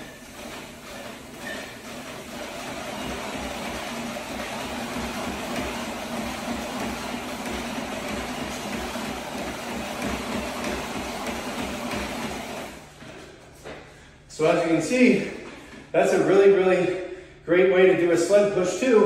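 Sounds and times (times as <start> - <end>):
treadmill belt whir: 0.0 - 13.9.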